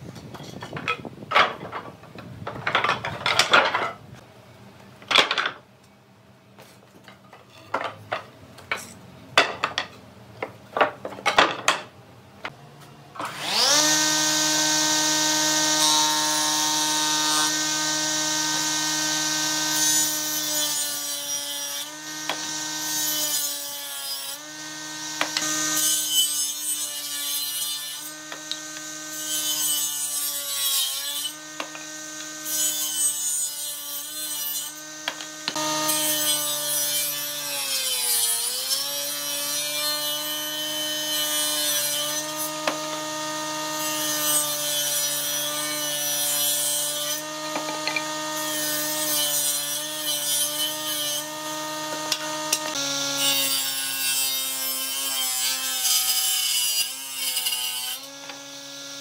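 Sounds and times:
table saw cutting wood: 13.2s - 59.0s.

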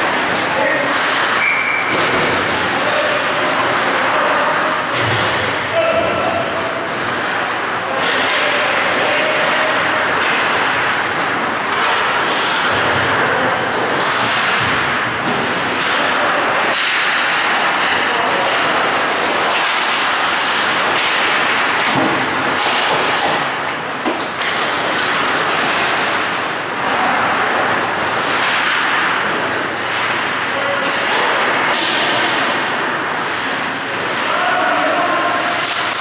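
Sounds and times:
hockey sticks and puck knocking: 0.0s - 34.2s
skates scraping ice: 0.0s - 36.0s
steady rush of noise: 0.0s - 36.0s.

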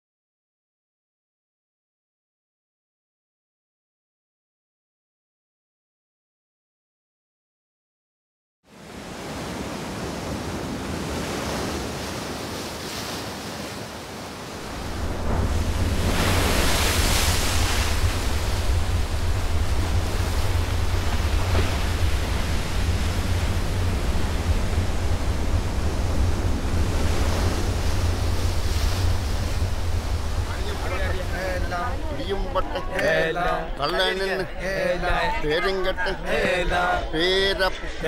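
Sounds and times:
sea waves washing: 8.7s - 38.0s
surf surging: 8.7s - 38.0s
wind blowing: 8.8s - 38.0s
deep low rumble: 14.6s - 35.9s.

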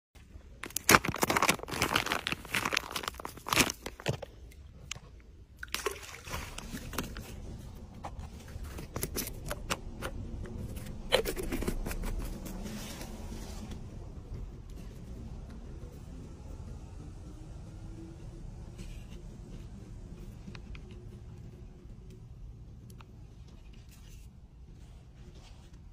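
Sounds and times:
plastic packet crinkling: 0.6s - 4.4s.

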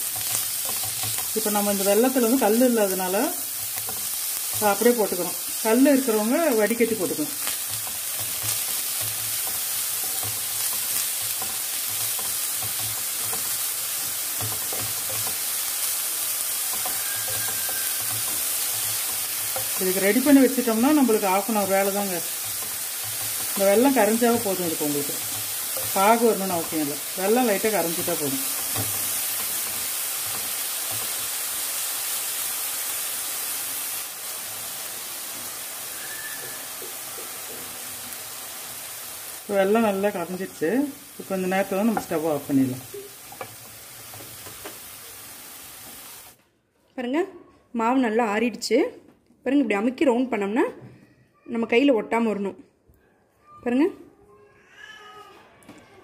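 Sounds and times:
spoon stirring in a pan: 0.0s - 2.6s, 3.4s - 5.6s, 7.3s - 33.2s, 41.0s - 46.2s
filling sizzling in a pan: 0.0s - 46.4s.

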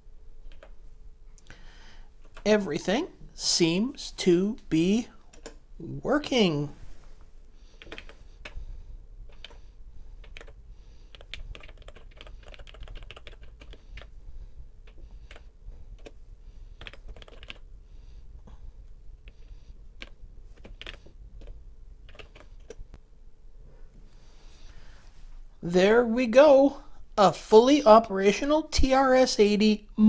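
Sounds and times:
keyboard typing clicks: 0.5s - 0.8s, 5.3s - 5.6s, 7.8s - 8.6s, 10.2s - 14.1s, 16.8s - 17.6s, 20.0s - 22.8s.

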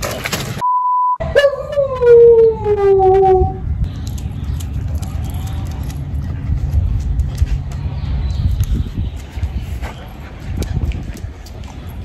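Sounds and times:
wind rumble on microphone: 1.3s - 12.0s
voice sliding down in pitch: 2.4s - 3.6s.

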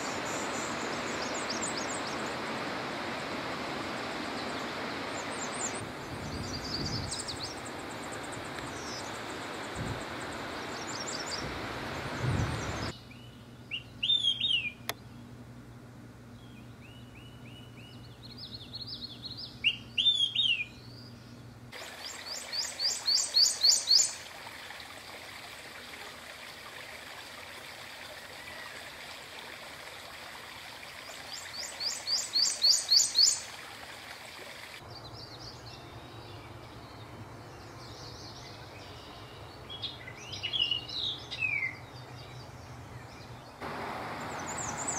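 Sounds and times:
warbler singing ringing notes: 12.2s - 15.2s, 16.4s - 21.4s, 22.3s - 24.2s, 34.9s - 43.6s, 44.2s - 44.9s.

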